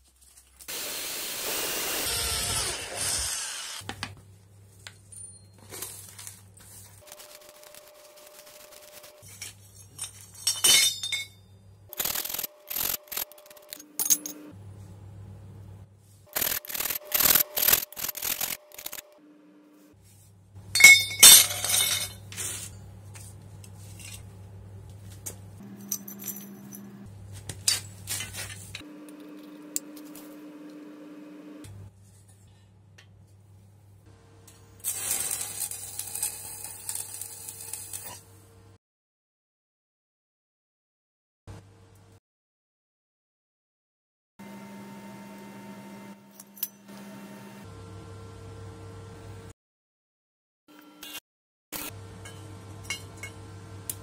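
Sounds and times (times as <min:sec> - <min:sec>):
steel tubing clinking on concrete: 0:20.8 - 0:22.4.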